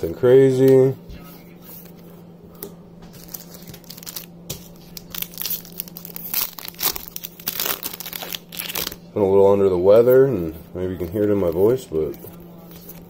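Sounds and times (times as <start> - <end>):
wrapper crinkling and tearing: 3.1 - 9.0.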